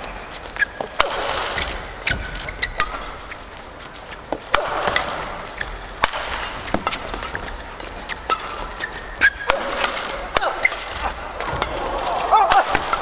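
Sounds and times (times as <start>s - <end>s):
crowd noise: 0.0s - 13.0s
rackets striking shuttlecock: 0.0s - 13.0s
shoes squeaking on court: 0.0s - 13.0s.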